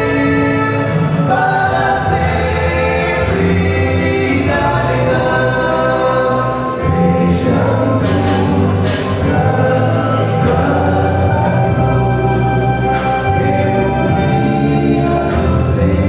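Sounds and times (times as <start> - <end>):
male vocal quartet singing: 0.0 - 16.0.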